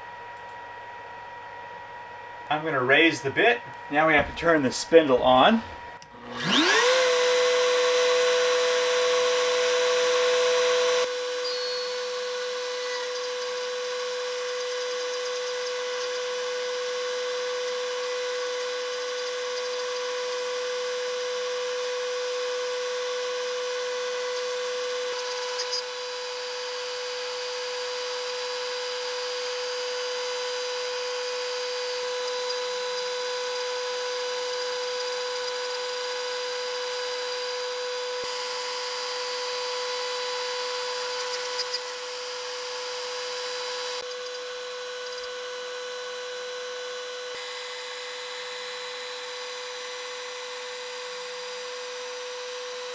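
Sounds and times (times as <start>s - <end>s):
router spindle milling metal: 5.0s - 10.0s.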